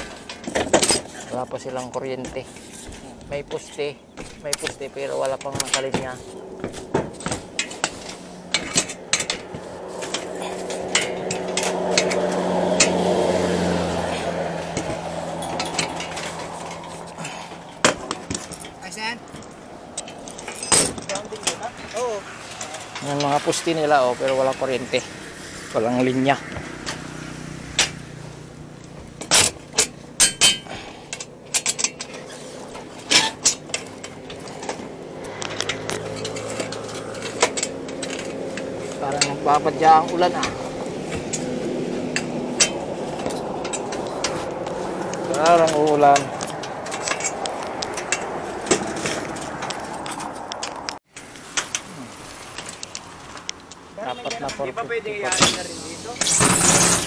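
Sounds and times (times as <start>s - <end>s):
metallic clinks and rattles: 0.0s - 13.0s, 14.1s - 23.3s, 28.7s - 51.0s.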